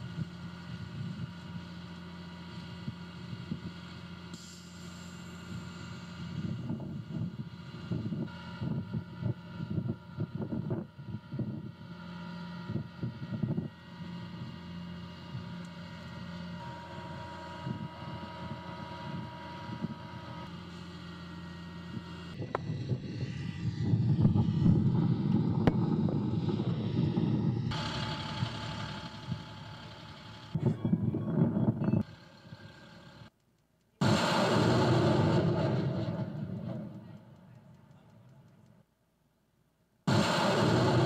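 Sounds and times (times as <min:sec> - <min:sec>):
diesel truck engine idling: 0:24.4 - 0:33.3.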